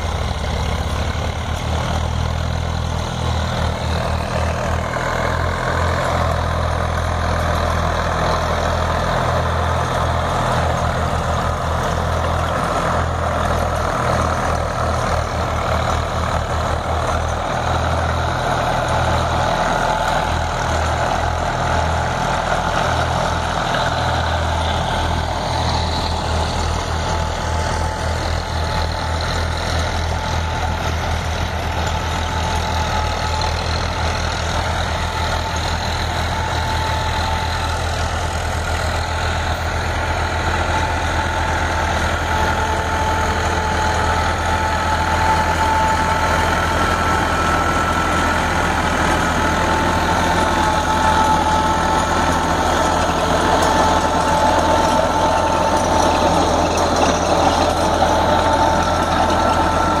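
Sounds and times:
tractor diesel engine under load: 0:00.0 - 1:00.0.

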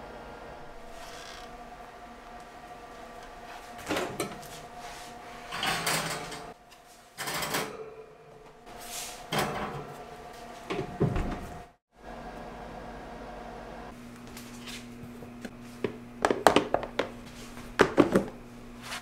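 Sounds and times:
steady hum: 0:00.0 - 0:19.0
pans knocking and scraping on rack: 0:17.8 - 0:18.4.

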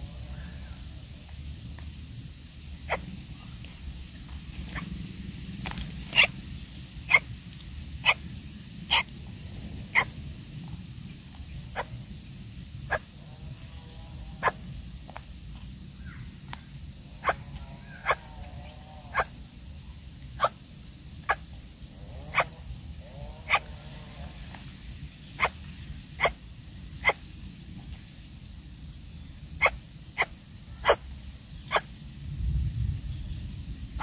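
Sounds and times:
birds giving sharp calls: 0:02.9 - 0:03.1, 0:05.6 - 0:07.4, 0:08.0 - 0:08.2, 0:08.9 - 0:09.1, 0:11.7 - 0:12.0, 0:17.2 - 0:18.3, 0:23.4 - 0:23.7, 0:25.4 - 0:25.6, 0:27.0 - 0:27.2, 0:29.6 - 0:31.0, 0:31.7 - 0:31.9.

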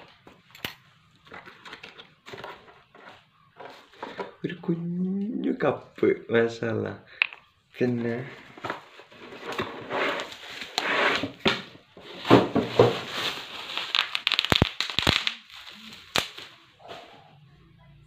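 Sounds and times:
packaging crinkling and rustling: 0:08.4 - 0:16.6
sharp snaps: 0:14.0 - 0:15.5.

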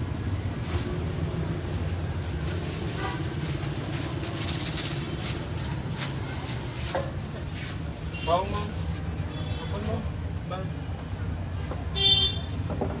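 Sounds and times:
plastic bag crinkling: 0:00.7 - 0:09.0.

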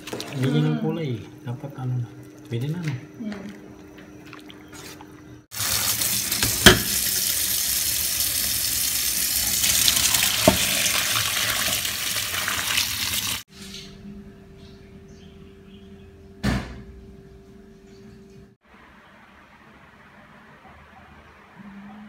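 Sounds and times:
water pouring into colander: 0:05.5 - 0:13.4.

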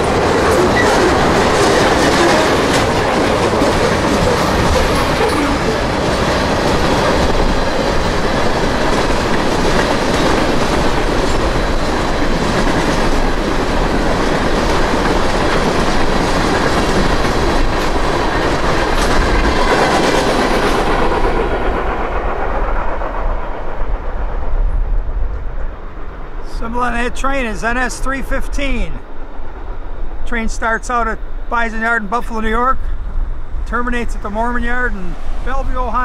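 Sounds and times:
train wheels clattering over rails: 0:00.0 - 0:25.8.

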